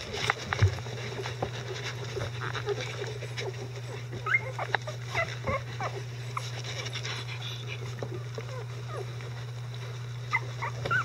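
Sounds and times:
puppies squeaking and whimpering: 0:00.0 - 0:11.0
rustling on bedding: 0:00.0 - 0:11.0
steady low hum: 0:00.0 - 0:11.0
dog licking: 0:00.1 - 0:11.0.

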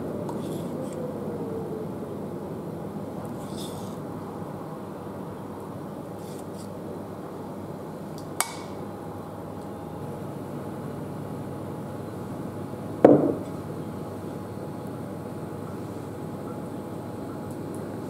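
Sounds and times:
dull knock: 0:13.1 - 0:13.4.

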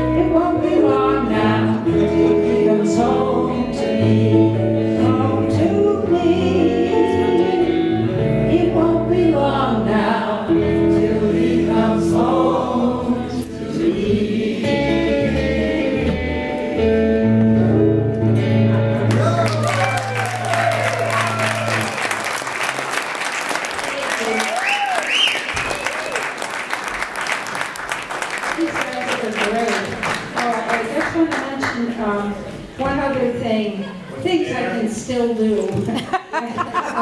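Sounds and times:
woman and man singing: 0:00.0 - 0:16.2
acoustic guitars: 0:00.0 - 0:19.6
electric bass guitar: 0:00.0 - 0:21.9.

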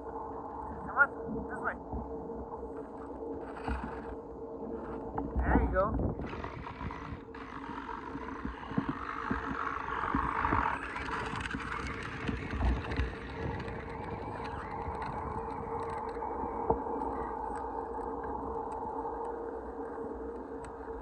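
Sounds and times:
plastic wheels crackling on gravel: 0:03.4 - 0:04.1, 0:06.2 - 0:18.2
small electric motor whine: 0:06.0 - 0:21.0.

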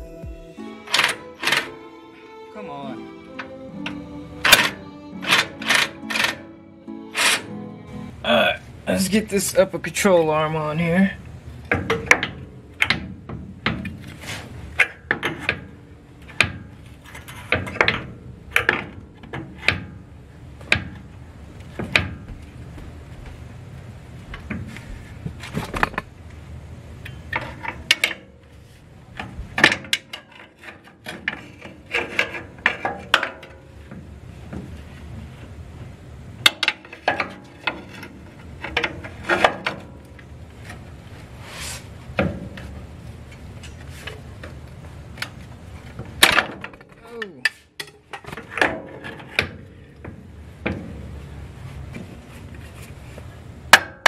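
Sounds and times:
metal clunks and scrapes: 0:11.7 - 0:20.0, 0:27.1 - 0:35.4, 0:36.4 - 0:40.8, 0:46.2 - 0:51.0.

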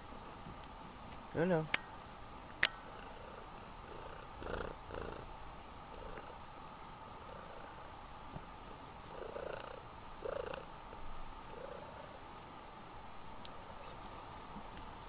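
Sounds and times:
cat purring: 0:02.8 - 0:06.4, 0:07.1 - 0:12.3.

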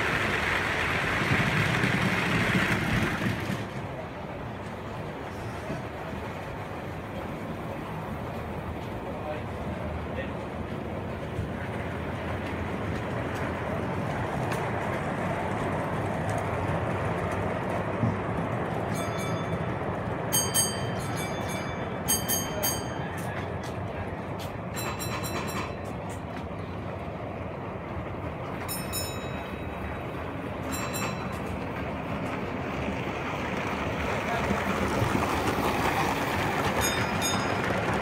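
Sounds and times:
model trains rumbling on track: 0:00.0 - 0:38.0
high metallic clinks: 0:24.7 - 0:25.9.

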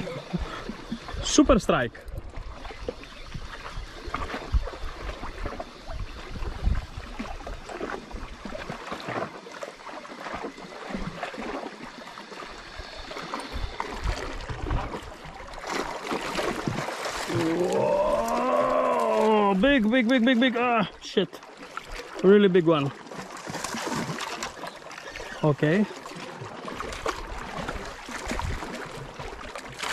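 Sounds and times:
wind buffeting microphone: 0:00.0 - 0:08.7
sea water splashing on rocks: 0:06.9 - 0:20.7, 0:21.5 - 0:29.9.

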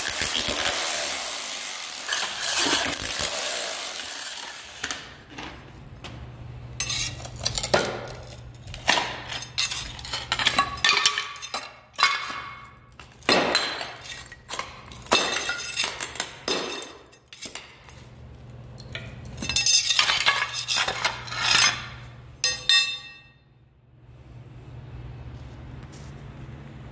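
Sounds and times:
scraper scraping tiles: 0:01.9 - 0:05.1, 0:19.8 - 0:21.9.

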